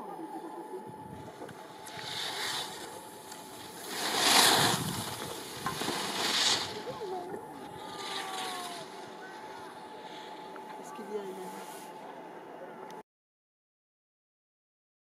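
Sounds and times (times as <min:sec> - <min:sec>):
skis carving on packed snow: 0:01.3 - 0:10.4.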